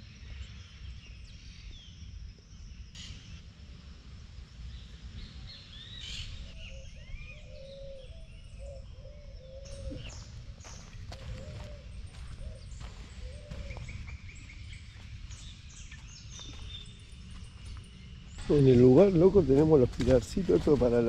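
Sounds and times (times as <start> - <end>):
repeated low bird calls: 0.0 - 21.0
birds chirping: 4.6 - 21.0.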